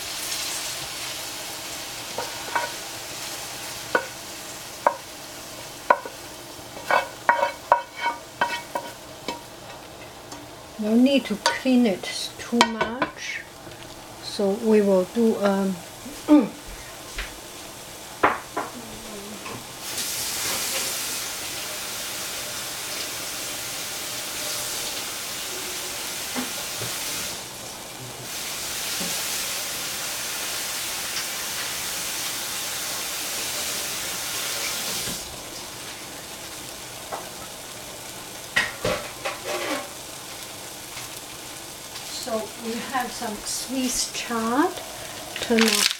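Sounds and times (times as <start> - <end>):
water running from a tap: 19.8 - 27.6, 28.2 - 36.4, 41.1 - 45.9.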